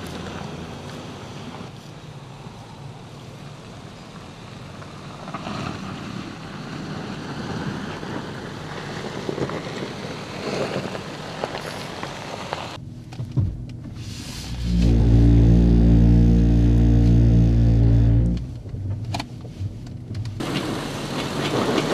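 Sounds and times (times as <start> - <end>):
car engine running low: 12.8 - 21.9.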